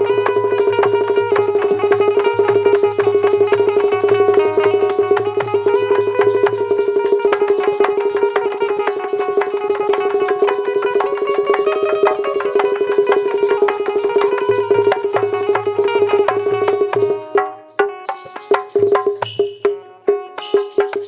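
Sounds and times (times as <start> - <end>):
held drone note: 0.0 - 17.4
keyboard melody: 0.0 - 18.6, 19.2 - 21.0
fast percussion strokes: 0.0 - 21.0.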